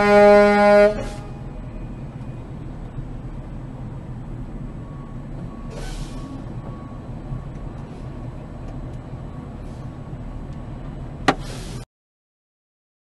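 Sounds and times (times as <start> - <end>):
car interior engine and road noise: 0.0 - 11.8
short hiss: 11.4 - 11.8.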